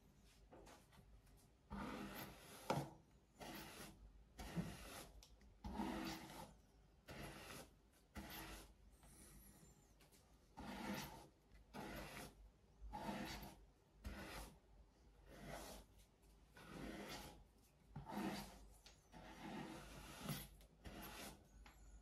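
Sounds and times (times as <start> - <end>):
rubbing rasping strokes: 3.4 - 9.3, 10.5 - 14.6, 16.5 - 21.5.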